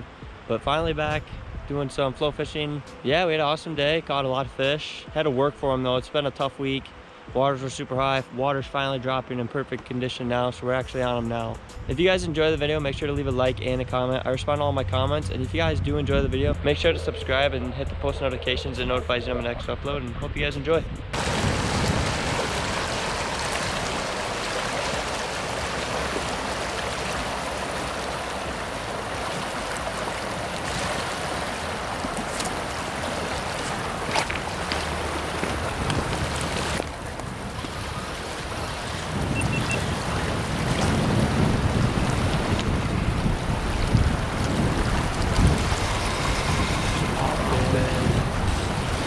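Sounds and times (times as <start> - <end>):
wind buffeting microphone: 0.0 - 1.9, 12.0 - 49.0
river rushing: 21.2 - 49.0.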